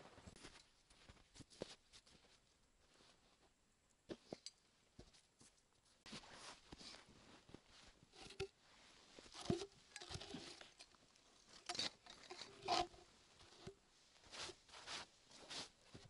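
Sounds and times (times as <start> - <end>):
crunching and rustling: 6.0 - 16.0.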